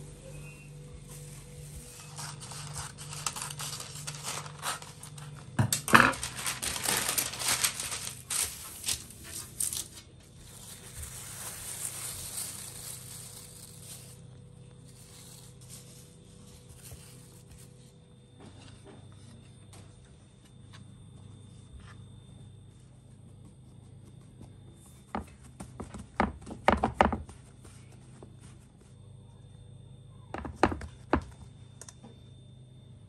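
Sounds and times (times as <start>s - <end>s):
baking paper crinkling: 0.7s - 19.3s.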